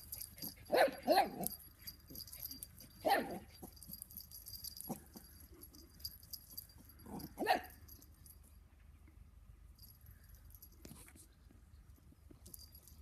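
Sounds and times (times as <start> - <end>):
small dogs barking: 0.4 - 1.6, 3.0 - 3.5, 7.1 - 7.8.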